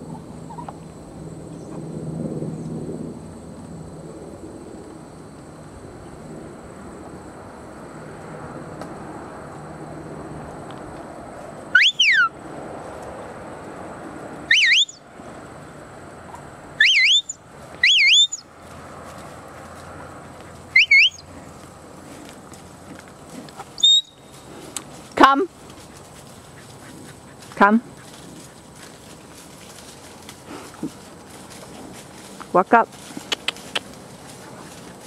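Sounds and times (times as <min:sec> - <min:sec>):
herding whistles: 0:11.7 - 0:12.3, 0:14.5 - 0:15.0, 0:16.8 - 0:18.4, 0:20.8 - 0:21.3, 0:23.8 - 0:24.4.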